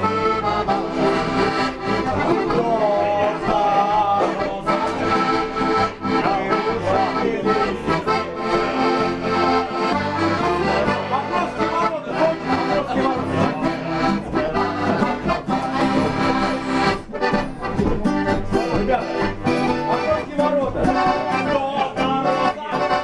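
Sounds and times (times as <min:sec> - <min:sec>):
accordion music: 0:00.0 - 0:23.0.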